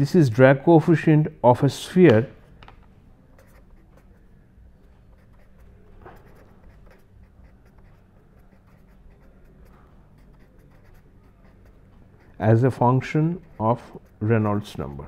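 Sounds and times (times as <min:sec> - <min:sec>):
pen scratching on paper: 0:03.3 - 0:15.0.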